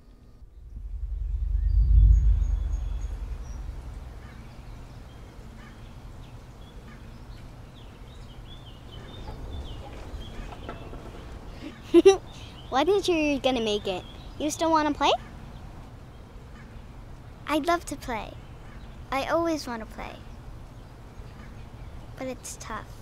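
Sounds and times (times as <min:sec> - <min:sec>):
low rumble: 0:00.0 - 0:06.0
small birds chirping: 0:00.4 - 0:22.9.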